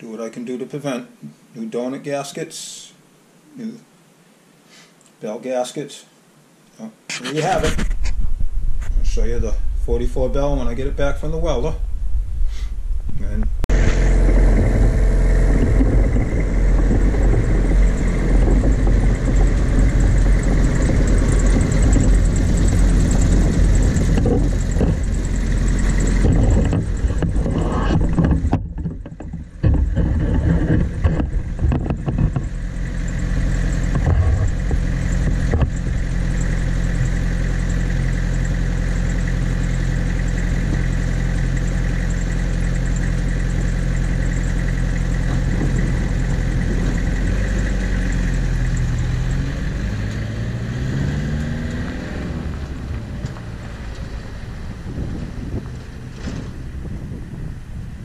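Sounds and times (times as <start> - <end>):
truck engine idling and revving: 13.6 - 58.0.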